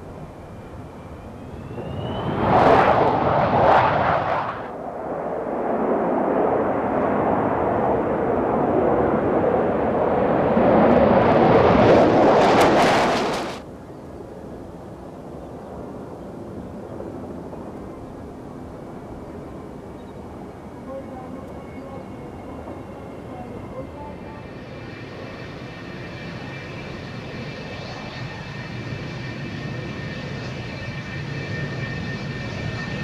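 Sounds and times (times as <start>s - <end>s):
jet engines at takeoff: 0.0s - 33.0s
jet noise crackling: 1.1s - 8.1s, 9.5s - 13.7s.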